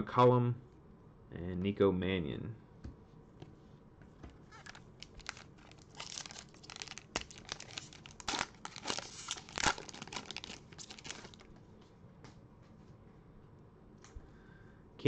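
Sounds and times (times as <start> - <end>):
foil wrapper crinkling and tearing: 4.5 - 11.5.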